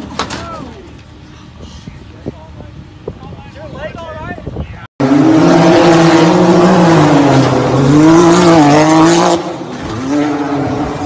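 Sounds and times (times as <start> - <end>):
off-road vehicle engine revving: 5.0 - 11.0.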